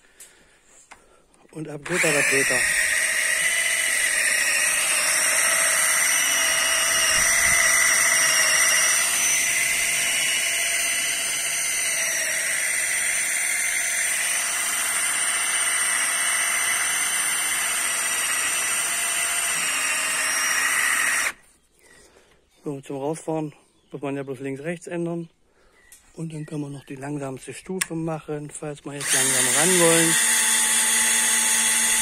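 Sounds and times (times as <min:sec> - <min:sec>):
cordless drill whining: 0:01.7 - 0:21.6, 0:29.0 - 0:32.0.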